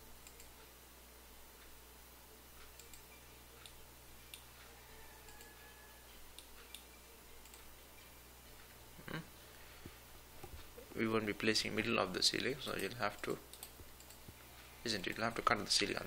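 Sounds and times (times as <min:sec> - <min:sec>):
low steady hum: 0:00.0 - 0:16.0
computer mouse clicks: 0:00.2 - 0:00.6, 0:02.6 - 0:04.5, 0:05.2 - 0:05.6, 0:06.3 - 0:07.7, 0:12.7 - 0:14.4.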